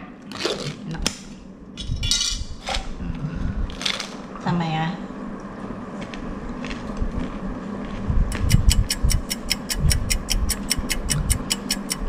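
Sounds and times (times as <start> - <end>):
mouth crunching and chewing: 6.0 - 12.0
fast even ticking: 8.3 - 12.0.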